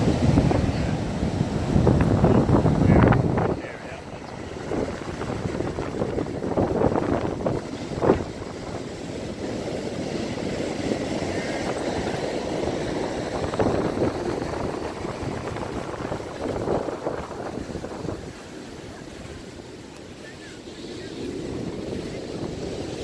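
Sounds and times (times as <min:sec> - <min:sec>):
ocean surf breaking: 0:00.0 - 0:23.0
wind rumbling on microphone: 0:00.0 - 0:23.0.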